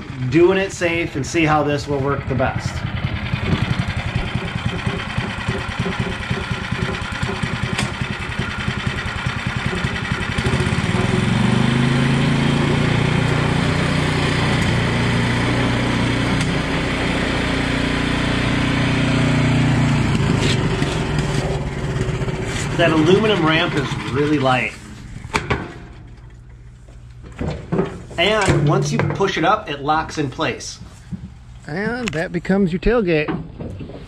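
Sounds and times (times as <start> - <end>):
snowblower engine running: 0.0 - 26.6.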